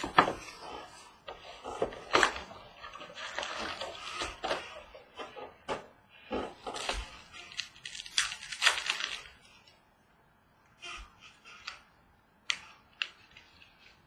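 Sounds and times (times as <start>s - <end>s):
foil packs rustling: 1.6s - 5.4s, 6.3s - 9.6s.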